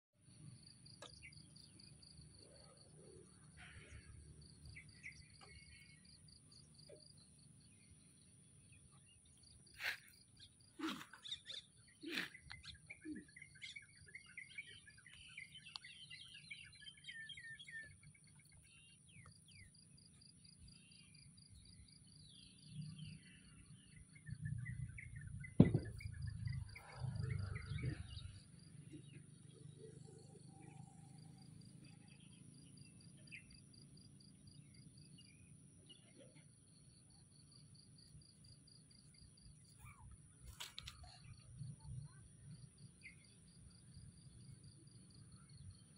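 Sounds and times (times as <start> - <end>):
birds chirping: 0.9 - 45.8
sharp knocks: 25.6 - 26.0.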